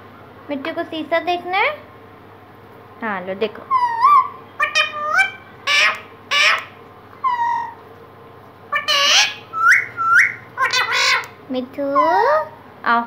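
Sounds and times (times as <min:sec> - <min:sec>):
parakeet chattering: 0:03.7 - 0:07.8, 0:08.7 - 0:12.6
parakeet squawks: 0:03.7 - 0:07.8, 0:08.7 - 0:12.6.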